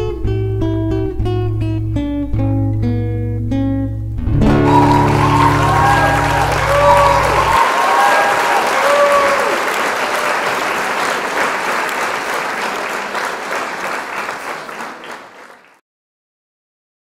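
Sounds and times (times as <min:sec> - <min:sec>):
audience applause: 0:04.5 - 0:15.8.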